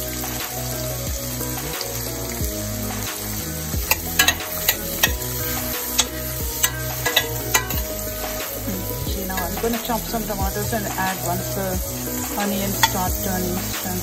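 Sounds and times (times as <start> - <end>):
onions sizzling in a pan: 0.0 - 14.0
metal spoon scraping a pan: 3.9 - 10.1, 12.7 - 13.1.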